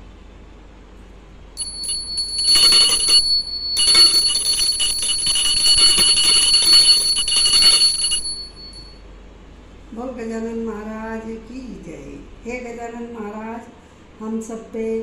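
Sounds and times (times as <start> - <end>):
hand bell ringing rapidly: 1.6 - 9.0.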